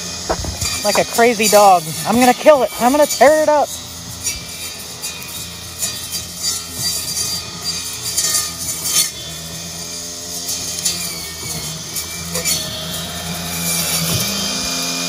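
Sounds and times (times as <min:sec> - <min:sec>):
saw blade and motors running: 0:00.0 - 0:15.0.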